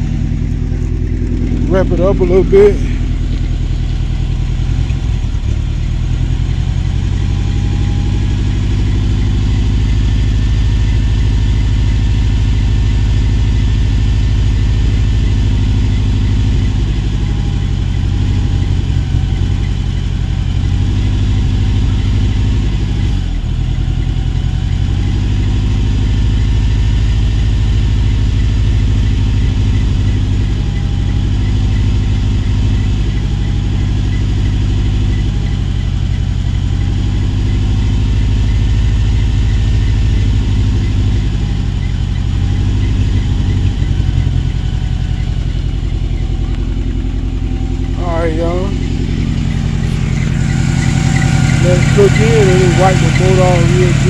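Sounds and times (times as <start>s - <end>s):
pickup engine idling: 0.0s - 54.0s.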